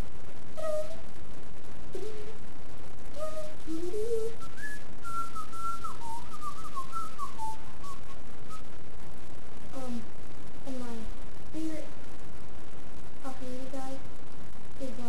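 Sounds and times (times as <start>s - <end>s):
person whistling a tune: 3.2s - 8.6s.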